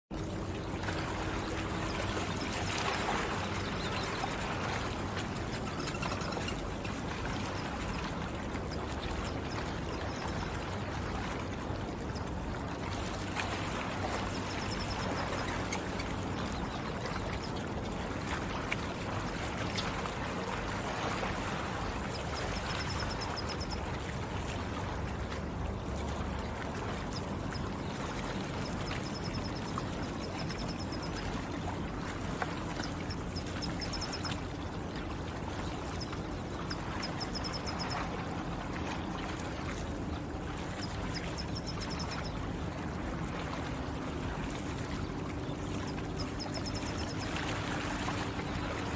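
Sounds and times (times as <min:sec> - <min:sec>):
water lapping at shore: 0:00.1 - 0:48.9
faint bird trills: 0:05.5 - 0:08.0, 0:32.0 - 0:34.5.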